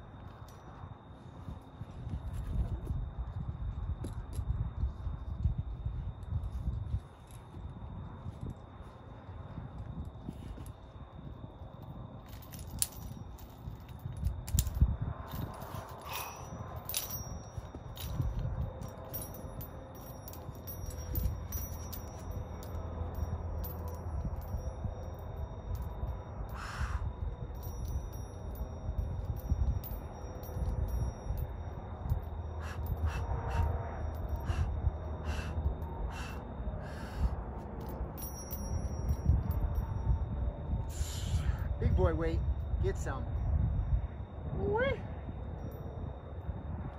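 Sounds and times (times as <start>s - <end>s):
night insects chirring: 0.0s - 37.6s
workout gear clinking on ground: 0.0s - 43.6s, 44.3s - 46.9s
man breathing hard: 15.9s - 16.6s, 26.5s - 27.1s, 32.6s - 37.6s, 40.9s - 41.8s.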